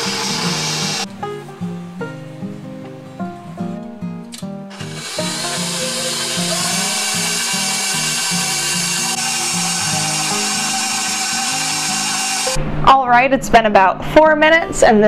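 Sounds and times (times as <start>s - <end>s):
stand mixer motor beating dough: 0.0s - 1.1s, 4.7s - 12.6s
music with slow melody: 0.0s - 12.9s.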